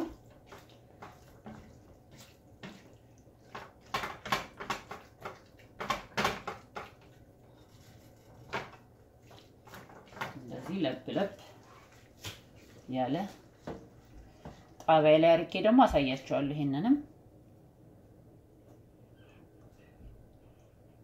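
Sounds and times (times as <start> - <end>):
spatula scraping meat in skillet: 0.1 - 3.9.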